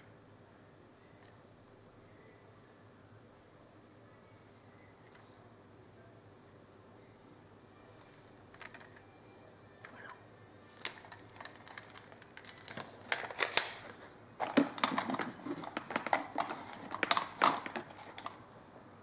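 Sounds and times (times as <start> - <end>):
small objects clicking and rustling: 8.5 - 9.0, 10.8 - 18.4.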